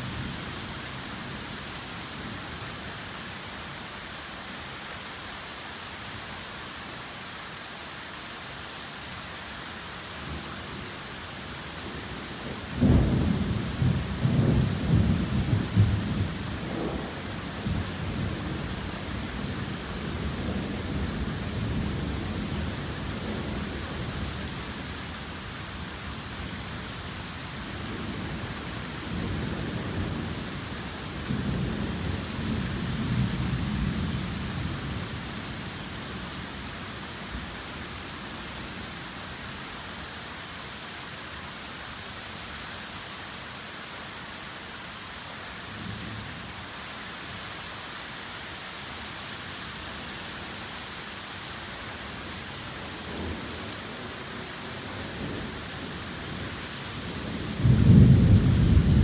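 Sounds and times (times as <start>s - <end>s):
torrential rain pouring: 0.0s - 59.0s
thunder rolling: 57.6s - 59.0s.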